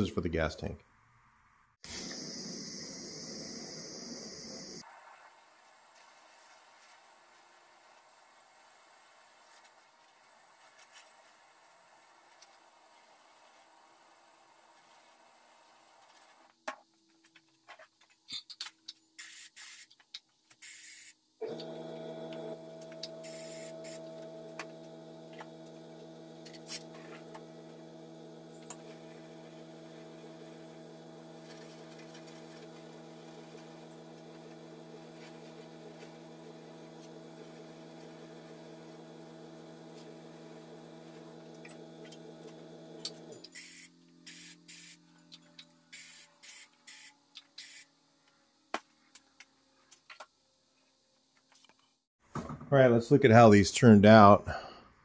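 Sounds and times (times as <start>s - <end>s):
electric motor hum: 1.9s - 4.8s, 21.4s - 47.8s.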